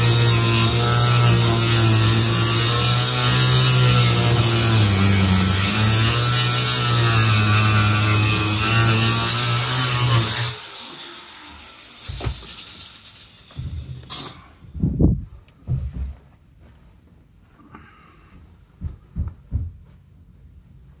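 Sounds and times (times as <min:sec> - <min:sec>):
power tool motor running: 0:00.0 - 0:14.1.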